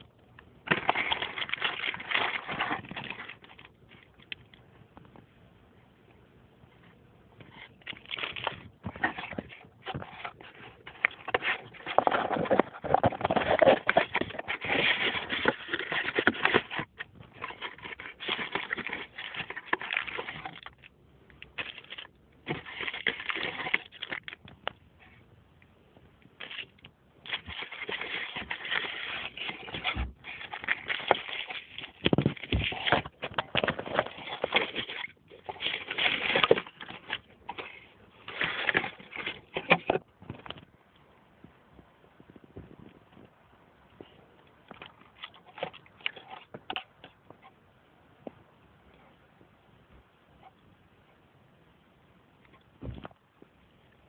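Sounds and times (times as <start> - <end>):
cardboard and plastic packaging crinkling: 0.0 - 4.6, 7.4 - 25.2, 26.3 - 40.7, 44.0 - 47.5.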